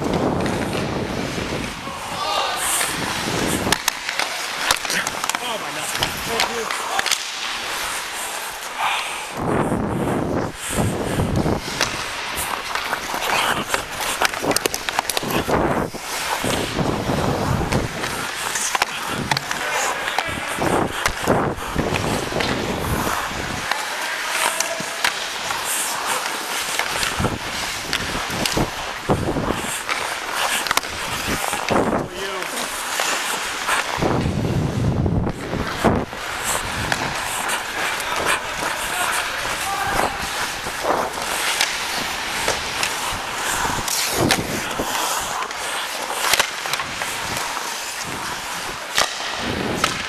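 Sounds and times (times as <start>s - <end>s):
skate blades scraping ice: 0.0s - 50.0s
sticks and puck clacking: 0.0s - 50.0s
hockey stick knocks: 48.9s - 50.0s.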